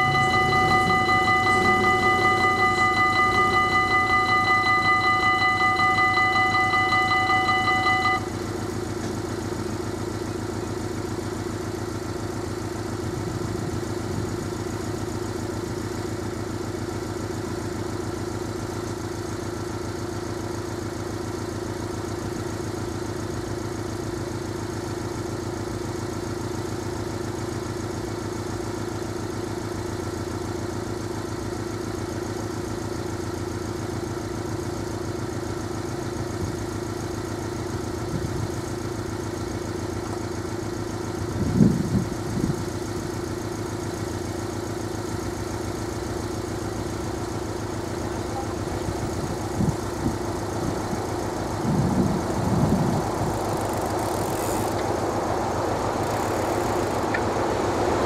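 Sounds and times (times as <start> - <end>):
crossing warning bell ringing: 0.0 - 10.3, 42.1 - 58.0
car engine idling: 0.0 - 58.0.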